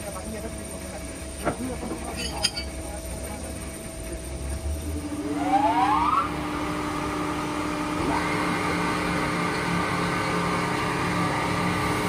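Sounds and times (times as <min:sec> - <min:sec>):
electric motor humming and whining: 0:03.2 - 0:12.0.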